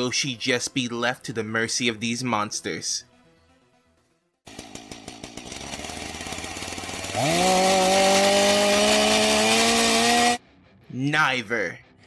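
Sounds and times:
chainsaw engine revving: 4.5s - 10.4s.

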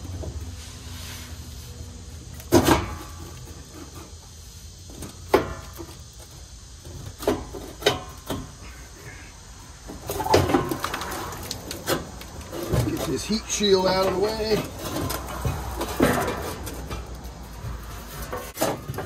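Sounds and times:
metal clanks and knocks: 11.8s - 19.0s.

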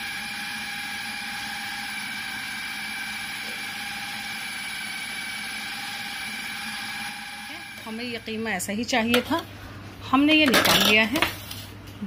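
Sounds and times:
food processor whine: 0.0s - 8.5s.

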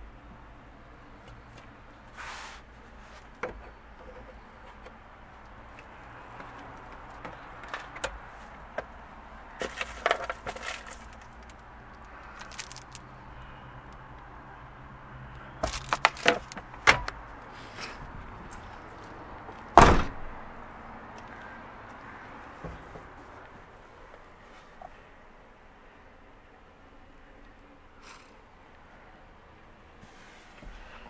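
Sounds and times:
rustling: 9.6s - 11.6s, 12.2s - 13.1s
clicks and crinkling: 9.6s - 13.1s, 15.6s - 17.2s.

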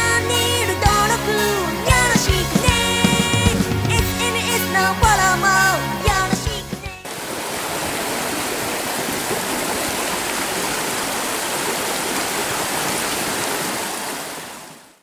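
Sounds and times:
stream rushing over rocks: 7.0s - 15.0s.

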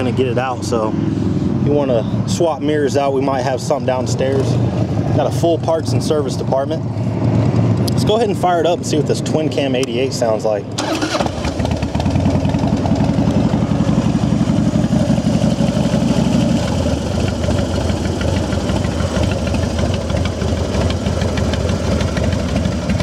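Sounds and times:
motorcycle engine idling: 10.8s - 23.0s.

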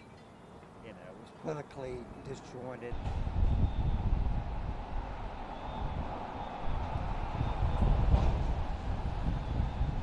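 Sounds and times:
gusty wind buffeting microphone: 2.9s - 10.0s.

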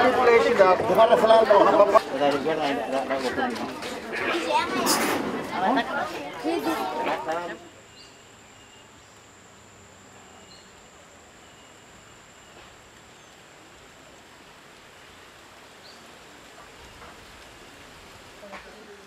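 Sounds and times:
steady hiss: 4.4s - 19.0s
high-pitched whine: 4.7s - 14.2s
faint chirps: 7.6s - 14.2s.

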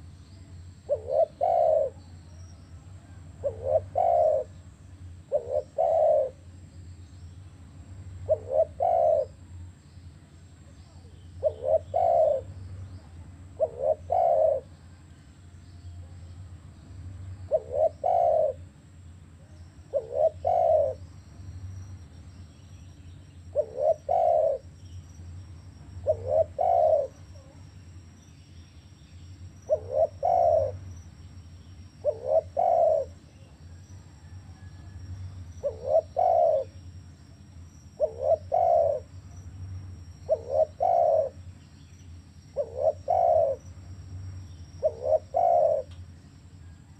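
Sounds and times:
dove cooing: 0.0s - 6.6s, 8.0s - 9.6s, 10.9s - 15.3s, 17.4s - 22.0s, 23.4s - 24.8s, 25.6s - 27.8s, 29.5s - 31.0s, 31.7s - 41.6s, 42.2s - 46.0s
faint low hum: 0.0s - 46.9s.

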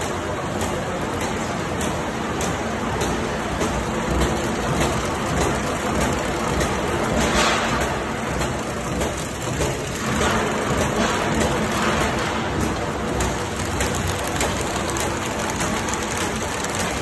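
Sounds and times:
paper bag machine clattering: 4.0s - 17.0s.

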